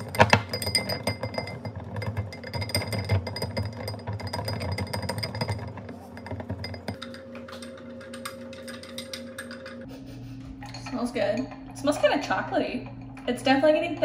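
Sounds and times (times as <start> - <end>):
whisk tapping glass bowl: 0.0 - 9.9.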